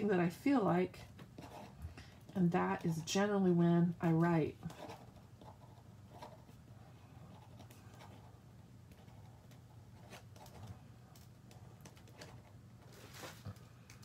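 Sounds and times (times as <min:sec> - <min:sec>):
paper scratching and rustling: 0:09.1 - 0:13.6.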